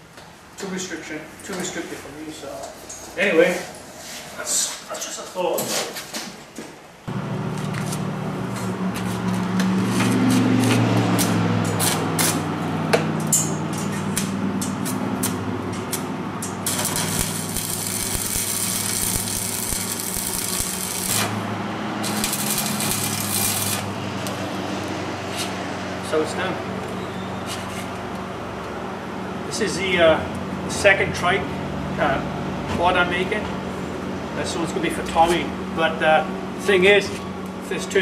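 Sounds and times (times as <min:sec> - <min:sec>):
welder low hum: 0:07.1 - 0:24.9
welding arc crackling and hissing: 0:16.6 - 0:24.5.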